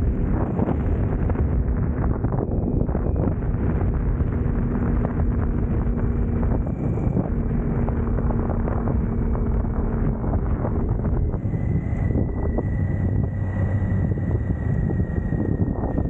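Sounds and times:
motorcycle engine: 0:00.0 - 0:16.0
wind rushing over microphone: 0:00.0 - 0:16.0.

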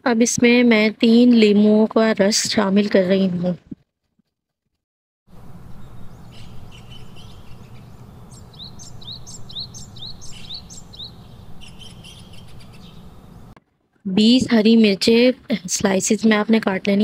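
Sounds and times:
steady low hum: 0:05.3 - 0:13.6
small birds chirping: 0:05.4 - 0:13.6.

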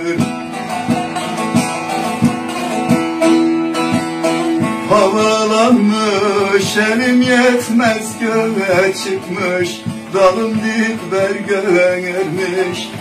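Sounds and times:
man singing: 0:00.0 - 0:00.6, 0:04.8 - 0:13.0
plucked long-necked lute melody: 0:00.0 - 0:13.0.

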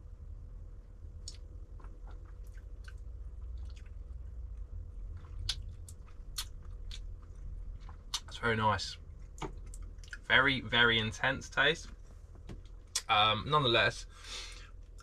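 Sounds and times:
wet mouth sounds and lip smacks: 0:01.2 - 0:08.4.

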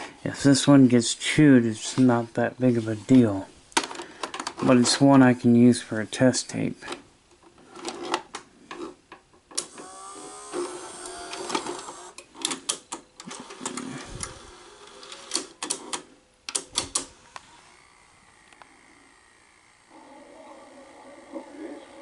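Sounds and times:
motor whine: 0:09.6 - 0:12.2, 0:17.1 - 0:22.0
steady mechanical whirr: 0:09.6 - 0:12.2, 0:13.8 - 0:15.3, 0:17.1 - 0:22.0
cassette mechanism clicks and clunks: 0:15.1 - 0:17.1.

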